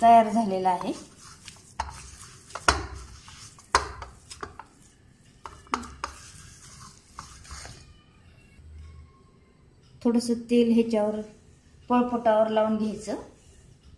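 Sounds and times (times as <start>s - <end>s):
fingers scraping metal plate: 5.5s - 7.8s.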